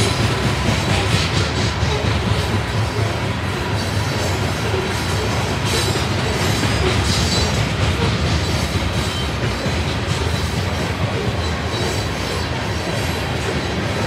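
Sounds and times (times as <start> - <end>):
train wheels rumbling over rail joints: 0.0 - 14.0
faint high wheel squeal: 8.4 - 14.0.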